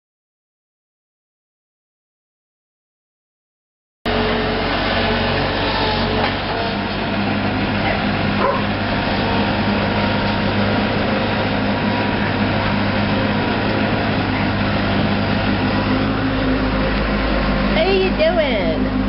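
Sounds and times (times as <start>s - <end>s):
loader engine running: 4.1s - 19.0s.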